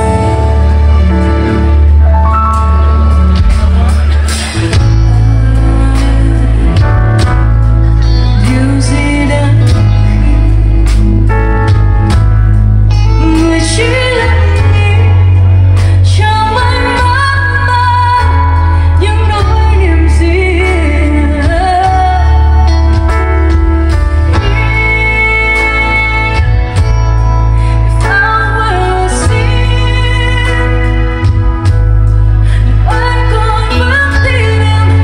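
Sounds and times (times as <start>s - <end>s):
person singing: 0.0s - 11.3s
band with heavy bass: 0.0s - 35.0s.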